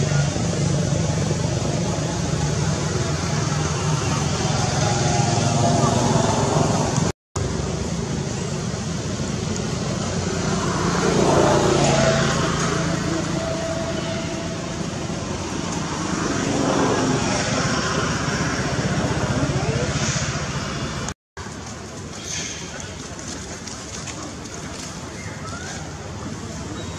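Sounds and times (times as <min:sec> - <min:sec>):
vehicle passing: 0:00.0 - 0:21.1
background traffic: 0:00.0 - 0:26.9.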